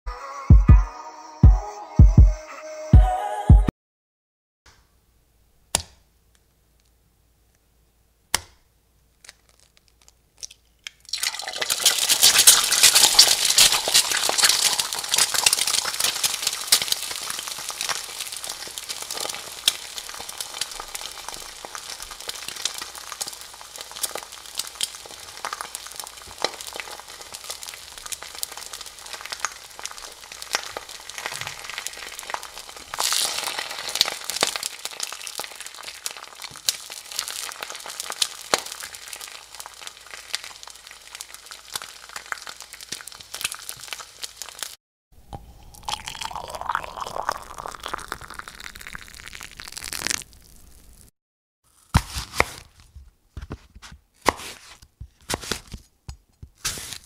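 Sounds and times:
spices sizzling and crackling in oil: 0:09.2 - 0:44.8, 0:46.3 - 0:51.1
onions sizzling in oil: 0:11.1 - 0:44.8, 0:47.9 - 0:51.1.

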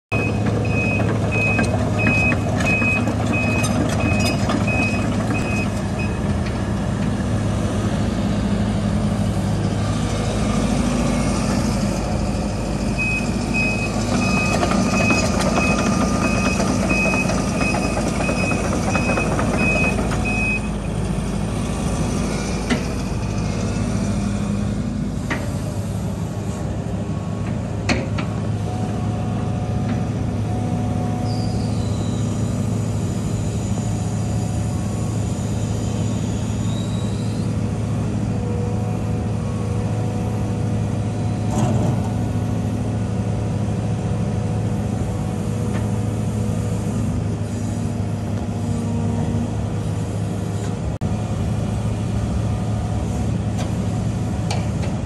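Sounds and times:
excavator diesel engine running: 0:00.1 - 0:55.0.

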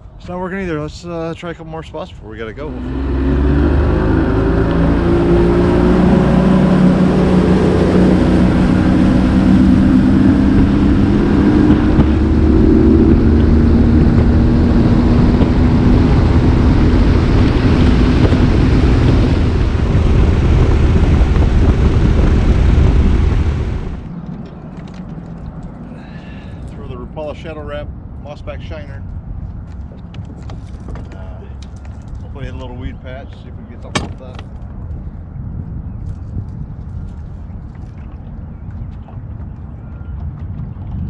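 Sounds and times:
wind rush on microphone: 0:00.0 - 0:41.0
outboard motor running: 0:02.6 - 0:26.8, 0:37.1 - 0:41.0.

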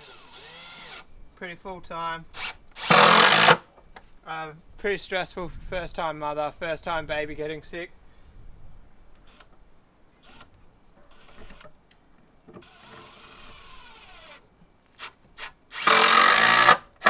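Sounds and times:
cordless drill running: 0:00.0 - 0:01.1, 0:02.4 - 0:03.6, 0:12.6 - 0:14.4, 0:15.7 - 0:16.8.

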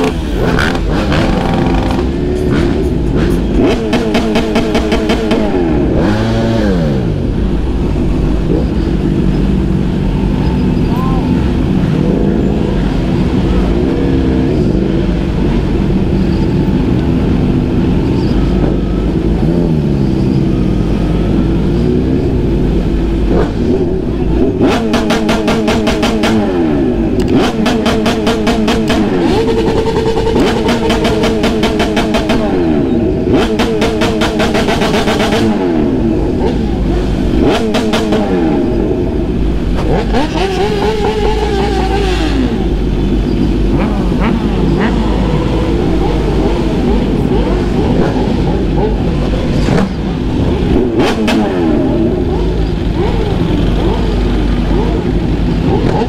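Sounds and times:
engine revving with popping rattle: 0:00.0 - 0:10.8, 0:11.6 - 0:56.0
motorcycle engine running: 0:00.0 - 0:56.0.

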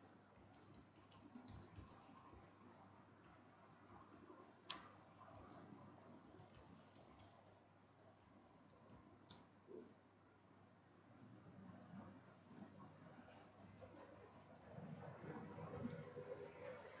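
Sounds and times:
keyboard typing: 0:00.0 - 0:07.6.

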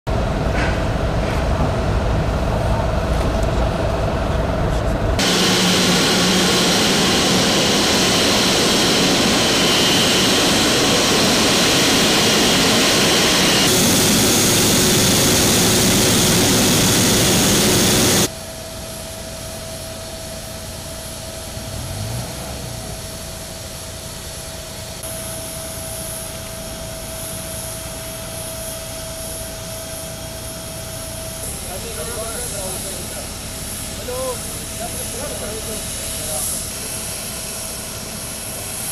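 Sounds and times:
jet engines roaring: 0:00.1 - 0:18.3, 0:21.4 - 0:38.9
machine hum with held tone: 0:22.8 - 0:34.7.

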